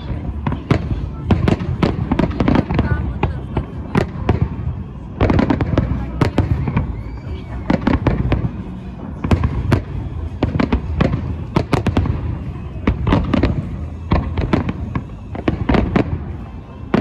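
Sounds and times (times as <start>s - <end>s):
continuous low rumble: 0.0s - 17.0s.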